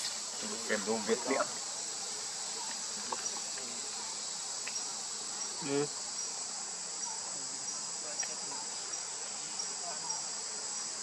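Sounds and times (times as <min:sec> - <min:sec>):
insects buzzing: 0:00.0 - 0:11.0
faint ticks: 0:04.6 - 0:04.9.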